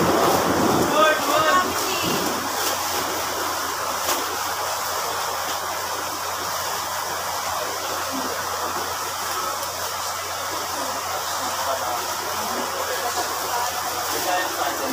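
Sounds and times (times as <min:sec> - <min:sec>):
steady rushing noise: 0:00.0 - 0:07.8.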